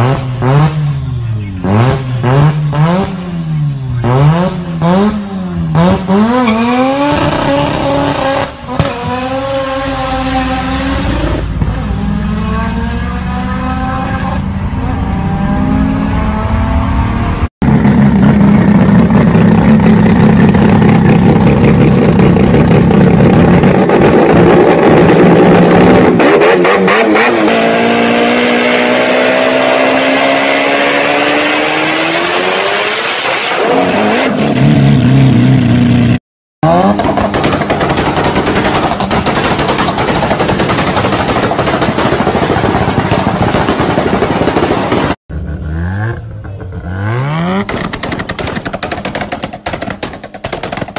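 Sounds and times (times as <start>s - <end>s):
rotary engine revving whine: 0.0s - 36.0s
car accelerating through gears: 4.0s - 17.5s
exhaust pops and bangs: 7.0s - 9.4s, 36.8s - 45.2s, 47.5s - 50.9s.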